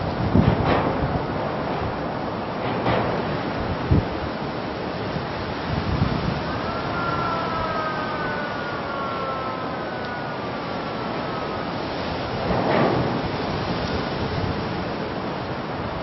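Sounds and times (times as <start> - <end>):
harbour water noise: 0.0 - 16.0
wind rushing over microphone: 0.0 - 16.0
faint siren-like wail: 5.1 - 15.0.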